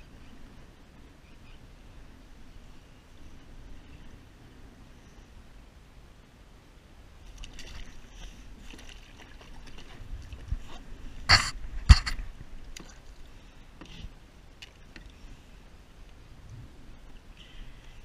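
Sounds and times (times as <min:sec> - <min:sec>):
water splashing against kayak: 0:07.2 - 0:14.0.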